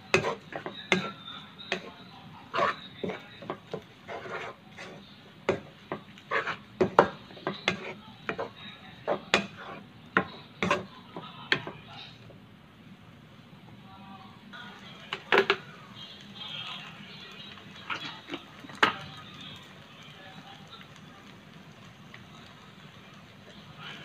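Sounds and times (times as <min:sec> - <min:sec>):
wooden spatula scraping a wok: 0:00.1 - 0:10.9.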